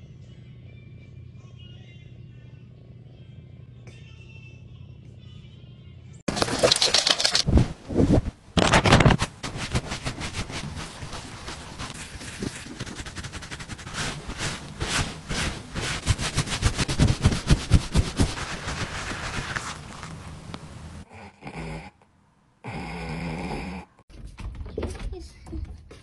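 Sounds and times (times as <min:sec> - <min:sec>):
gloved hand rubbing dog fur: 0:09.2 - 0:20.4.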